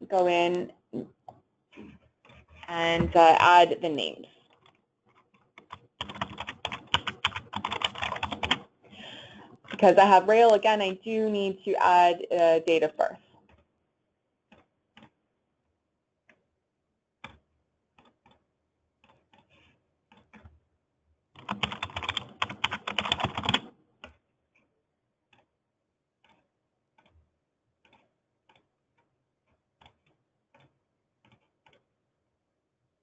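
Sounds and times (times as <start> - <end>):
typing on computer keyboard: 4.5 - 10.6, 21.3 - 24.2, 29.8 - 31.9.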